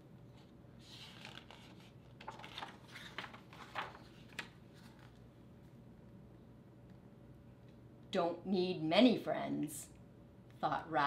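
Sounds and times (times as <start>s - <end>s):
book pages turning: 0.3s - 5.2s.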